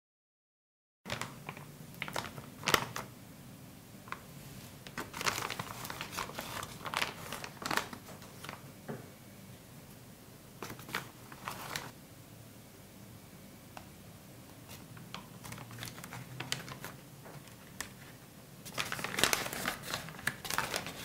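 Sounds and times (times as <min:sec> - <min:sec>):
paper bag rustling and crinkling: 0:01.1 - 0:03.1, 0:04.1 - 0:08.6, 0:10.6 - 0:11.9, 0:14.6 - 0:21.0.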